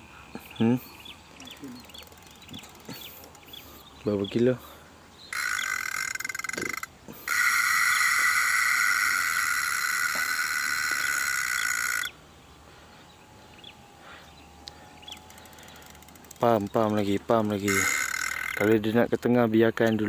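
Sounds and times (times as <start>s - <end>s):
fishing reel buzzing: 1.5s - 3.6s, 5.3s - 12.2s, 15.1s - 16.7s, 17.4s - 18.8s.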